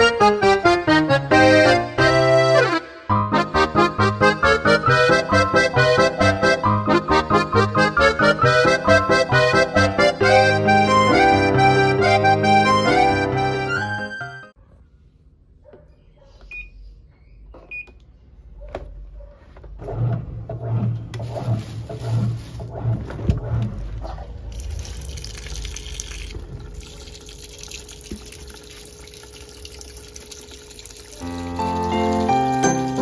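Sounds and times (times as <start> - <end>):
washing machine hum and clatter: 17.5 - 33.0
water pouring into drum: 24.5 - 33.0.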